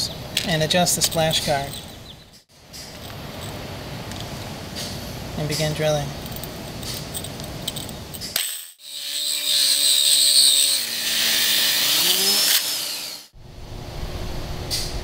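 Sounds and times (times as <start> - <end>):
core drill grinding tile: 8.8 - 13.3
drill motor hum: 8.8 - 13.3.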